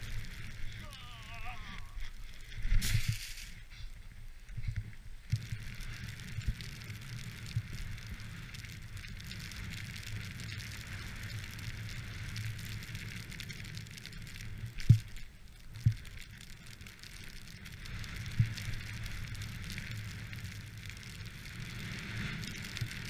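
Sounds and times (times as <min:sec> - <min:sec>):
snowboard hissing through snow: 0:00.0 - 0:04.0.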